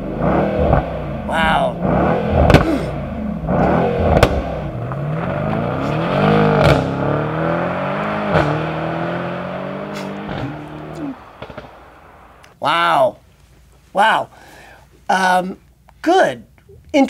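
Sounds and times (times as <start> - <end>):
car engine revving: 0.0 - 12.4
exhaust pops: 0.2 - 12.5.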